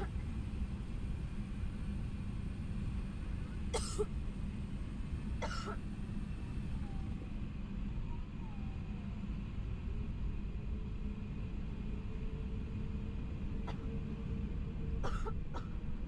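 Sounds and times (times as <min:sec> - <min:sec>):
aircraft cabin rumble: 0:00.0 - 0:16.0
person coughing: 0:03.8 - 0:04.1, 0:05.4 - 0:05.8, 0:15.0 - 0:15.7.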